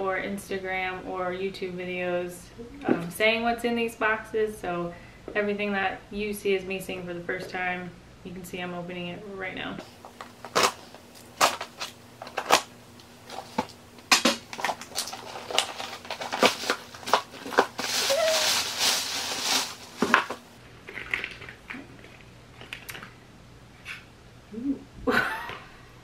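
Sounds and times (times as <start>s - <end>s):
packing rustling: 10.0s - 21.4s.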